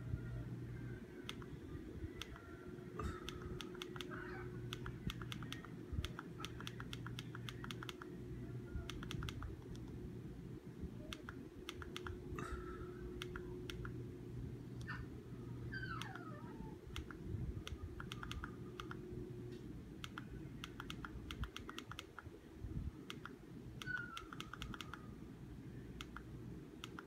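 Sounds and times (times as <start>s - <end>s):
low steady hum: 0.0s - 27.0s
remote button clicks: 3.2s - 8.1s, 8.8s - 10.0s, 11.1s - 12.2s, 13.2s - 14.0s, 20.0s - 22.3s.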